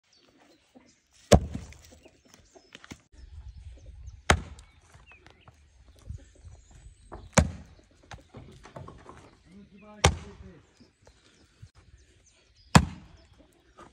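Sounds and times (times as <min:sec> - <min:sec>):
log thudding on chopping block: 0:01.3 - 0:01.9, 0:04.3 - 0:04.6, 0:07.2 - 0:07.7, 0:10.0 - 0:10.4, 0:12.7 - 0:13.1.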